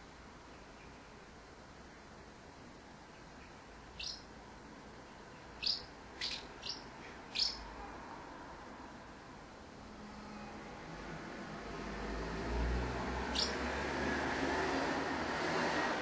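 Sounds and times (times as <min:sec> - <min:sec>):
house martins chirping: 0:03.2 - 0:04.3, 0:05.2 - 0:07.7, 0:13.2 - 0:13.7.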